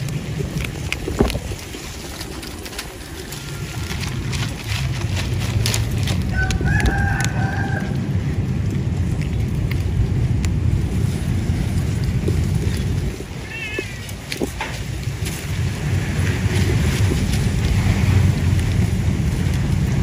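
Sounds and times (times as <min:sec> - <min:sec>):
paper rustling: 0:00.0 - 0:07.2
cats crunching dry kibble: 0:00.0 - 0:20.0
steady low rumble: 0:00.0 - 0:20.0
rooster crowing: 0:06.3 - 0:08.1.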